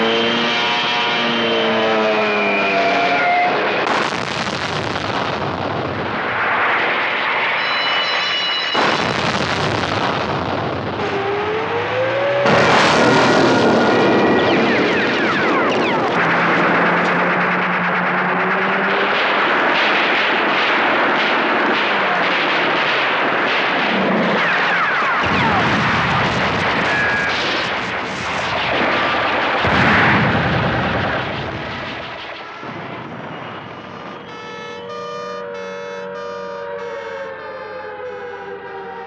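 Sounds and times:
explosions: 0:00.0 - 0:34.4
falling whistles: 0:01.3 - 0:03.6, 0:07.4 - 0:08.8, 0:26.8 - 0:27.4, 0:32.2 - 0:37.2
gunfire: 0:03.4 - 0:34.4
steady multi-pitch tone: 0:07.4 - 0:08.8, 0:13.6 - 0:19.2, 0:33.8 - 0:39.0.

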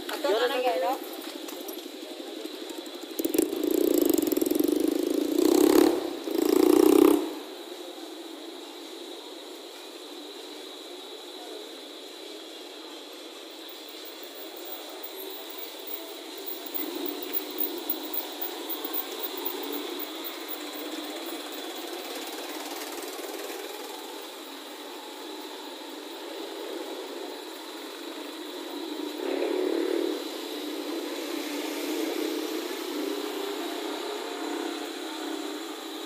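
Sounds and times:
small motorcycle engines on wet road: 0:01.1 - 0:07.8, 0:15.2 - 0:36.0
motorcycle passing loudly: 0:03.1 - 0:07.5, 0:29.0 - 0:36.0.

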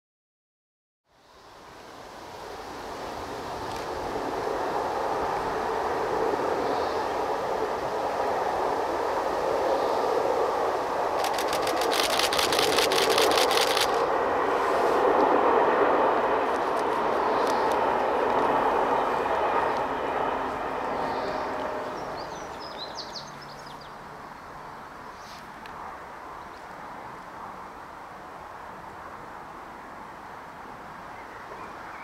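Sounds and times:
diesel locomotive running: 0:03.9 - 0:23.6
fast rattle of clicks: 0:11.2 - 0:14.1.

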